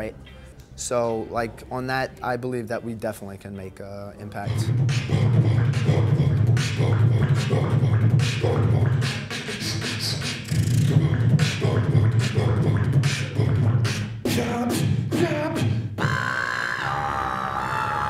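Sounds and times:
beatboxing into microphone: 4.4 - 18.0.

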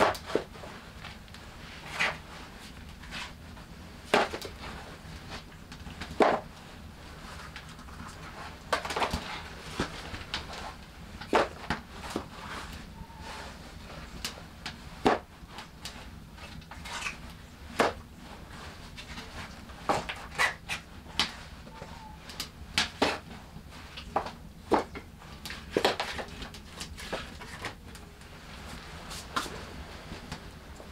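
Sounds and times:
firewood logs knocking together: 24.1 - 25.1.

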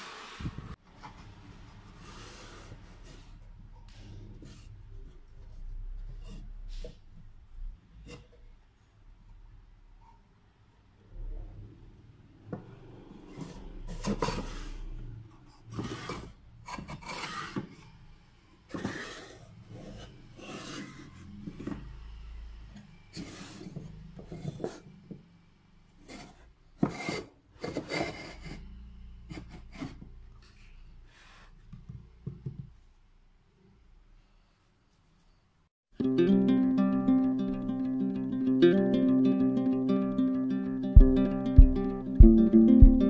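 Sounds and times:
wooden drawers scraping: 13.2 - 15.0, 15.6 - 17.9, 18.7 - 21.9.

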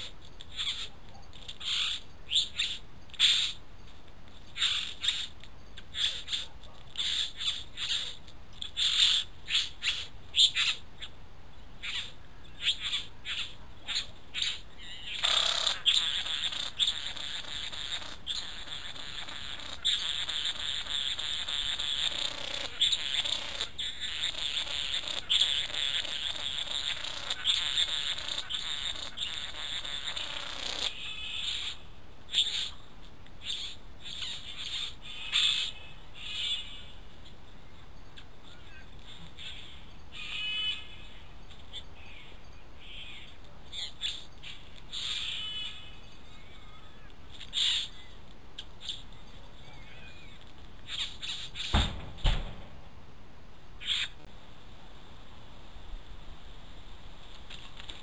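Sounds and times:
bird calling: 53.8 - 54.3.

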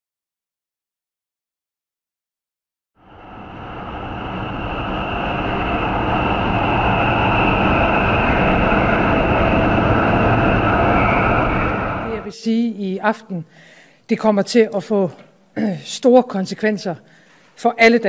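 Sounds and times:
subway train rumbling in tunnel: 3.0 - 12.3
high whine: 3.0 - 12.5.

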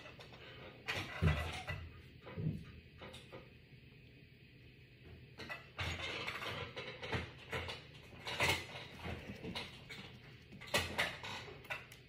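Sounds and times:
small objects clattering on countertop: 0.0 - 3.5, 5.4 - 12.0.

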